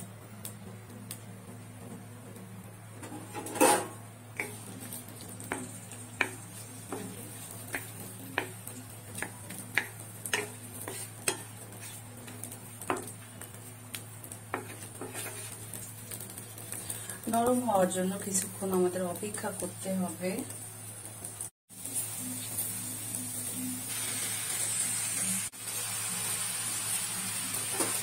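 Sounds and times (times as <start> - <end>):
onions frying in oil: 0.0 - 28.0
spatula knocking against pan: 5.5 - 11.5.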